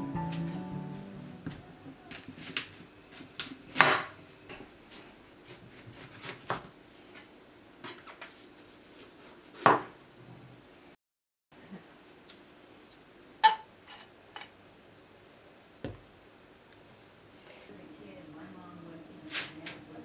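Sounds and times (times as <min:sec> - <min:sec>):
knife cutting pumpkin rind: 0:04.9 - 0:06.6.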